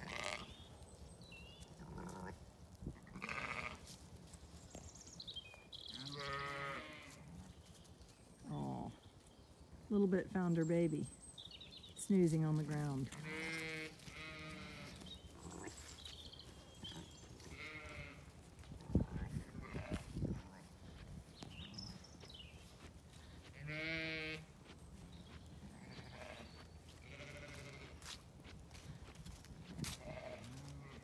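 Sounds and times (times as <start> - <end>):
sheep bleating: 0.0 - 0.6, 1.8 - 2.4, 3.0 - 3.9, 5.9 - 7.4, 13.1 - 15.9, 16.8 - 20.7, 23.6 - 24.5, 25.7 - 28.1, 29.8 - 31.0.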